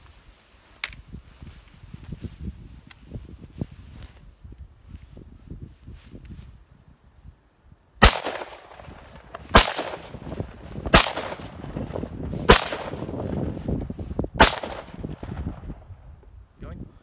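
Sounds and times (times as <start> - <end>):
rifle shots: 8.0 - 13.3, 14.4 - 15.6
rolling echo of gunshots: 8.0 - 13.3, 14.4 - 15.7.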